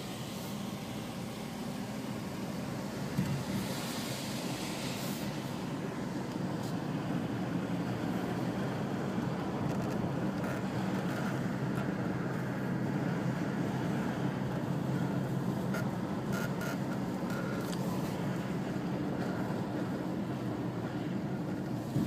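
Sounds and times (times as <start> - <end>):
car road and engine noise: 0.0 - 22.0.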